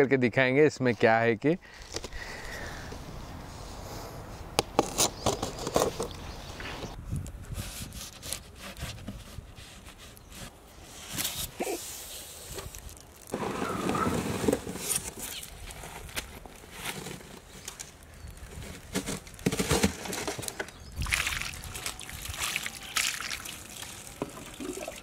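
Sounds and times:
rustling scrape: 7.5 - 20.6.

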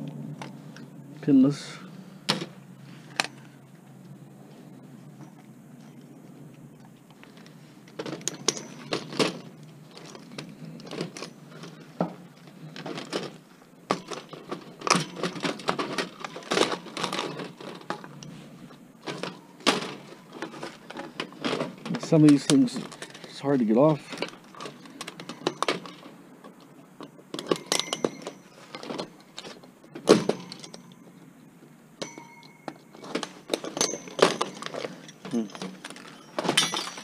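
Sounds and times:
computer parts clicking and rattling: 7.9 - 18.4.

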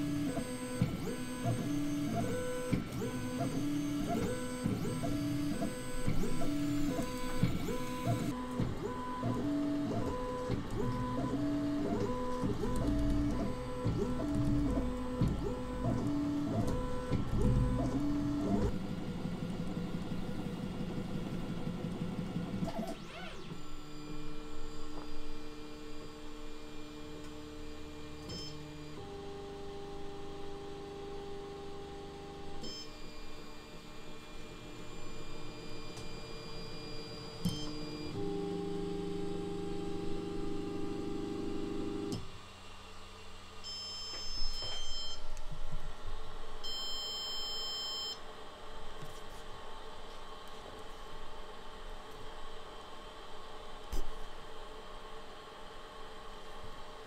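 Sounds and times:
printer stepper motors whining: 0.0 - 42.3.

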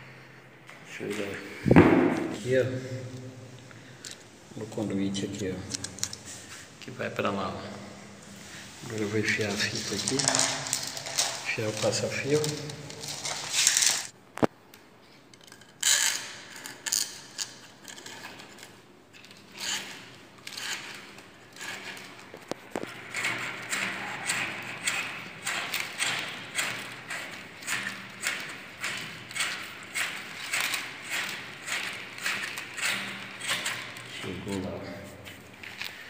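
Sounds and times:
fish tape scraping in conduit: 8.4 - 14.1, 15.8 - 36.0.

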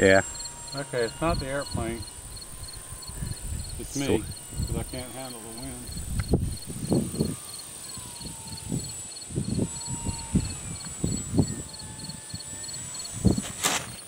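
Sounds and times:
electric motor whine: 0.0 - 14.0
insects trilling: 0.0 - 14.0
wind buffeting microphone: 0.0 - 14.0
sharp crackle: 13.0 - 14.0.

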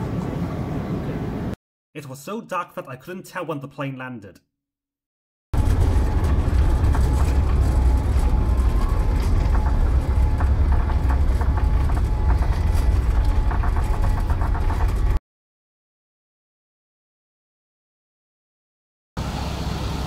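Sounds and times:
aircraft cabin rumble: 5.6 - 15.2.

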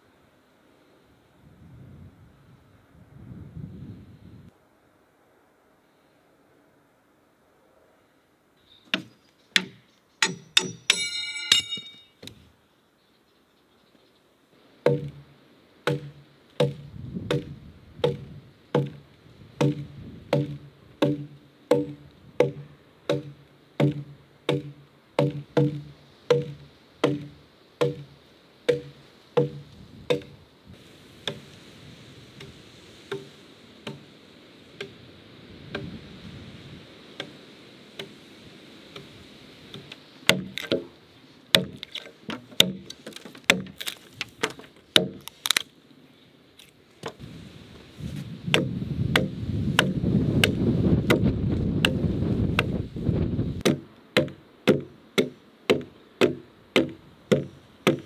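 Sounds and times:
sharp ringing knocks: 9.6 - 12.2
axe chopping into a log: 14.8 - 15.2, 15.8 - 19.0, 19.6 - 28.1, 28.7 - 30.4, 40.3 - 40.9, 41.5 - 45.2, 48.5 - 52.8, 53.6 - 58.0.

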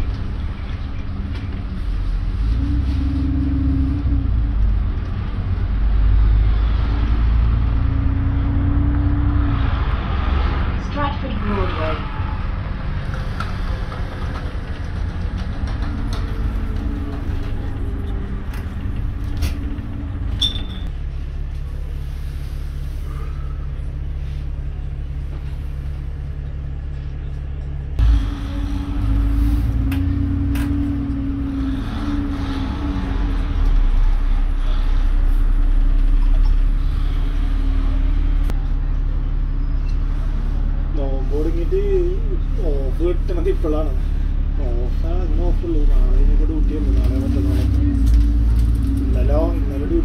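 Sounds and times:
bus engine running: 0.0 - 50.0.

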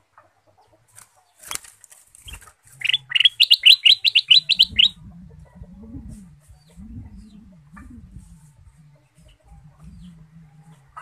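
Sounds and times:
bird wings flapping: 1.0 - 2.9
bird chattering: 2.3 - 5.0.

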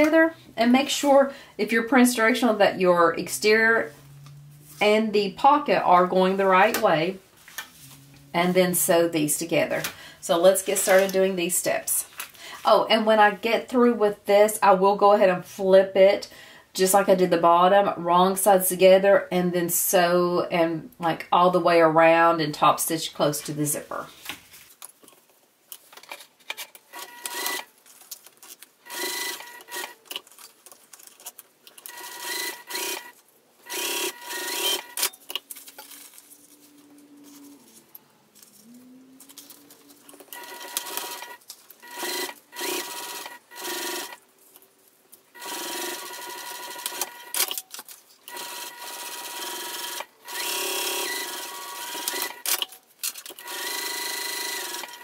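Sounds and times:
fabric rustling: 7.2 - 8.8, 24.0 - 26.5
sewing machine stitching: 28.9 - 30.0, 31.8 - 33.1, 33.7 - 35.1, 40.3 - 44.2, 45.4 - 47.5, 48.3 - 52.7, 53.3 - 55.0.

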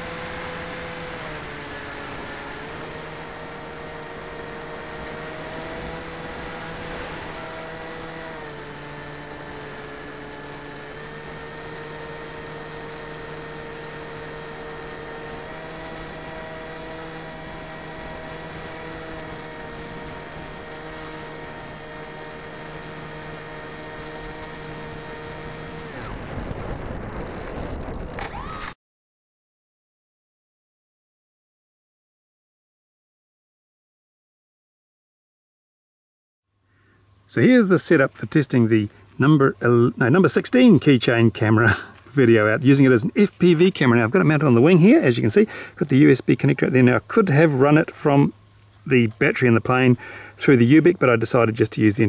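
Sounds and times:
electric motor and propeller whine: 0.0 - 28.8.

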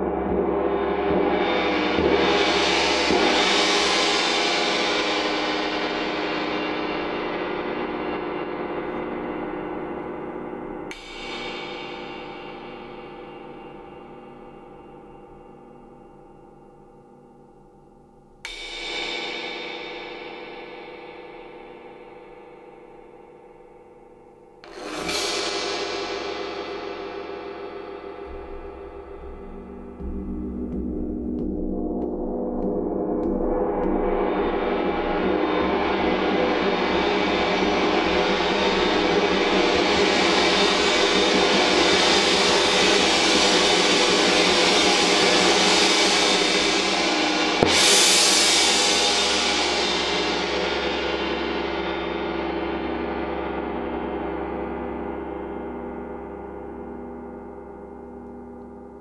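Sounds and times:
gong struck with mallet: 25.1 - 35.8
gong ringing: 28.2 - 33.3.

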